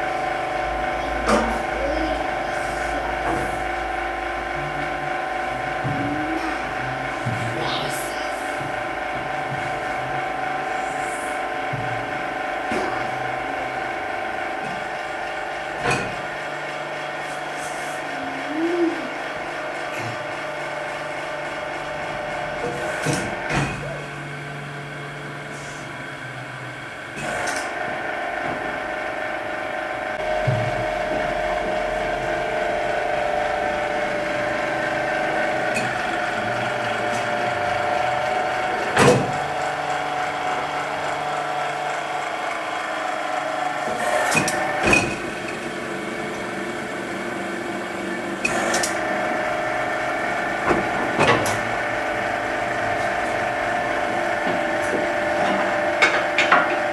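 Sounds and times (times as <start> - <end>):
hydraulic pump motor hum: 0.0 - 56.9
sharp clicks of pump controls: 48.3 - 49.3.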